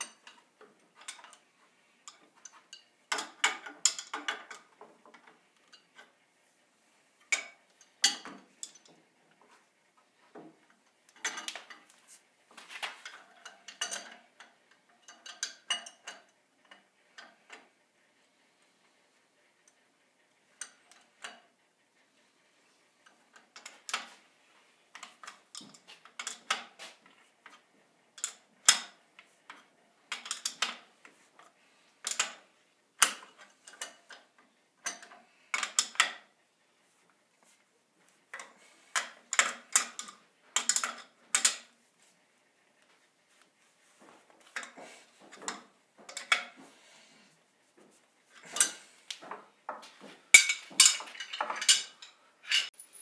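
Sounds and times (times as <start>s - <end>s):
wrenches clinking on pipe fittings: 2.0s - 6.1s, 7.2s - 9.0s, 11.1s - 11.9s, 13.0s - 17.4s, 25.0s - 26.8s, 28.2s - 30.8s, 32.0s - 34.2s, 34.8s - 36.3s, 38.3s - 41.7s, 44.4s - 46.6s, 48.4s - 53.0s.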